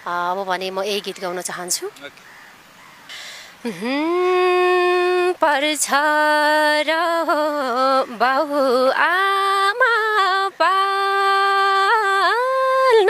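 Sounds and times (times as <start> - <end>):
singer breathing: 2.3 - 3.6.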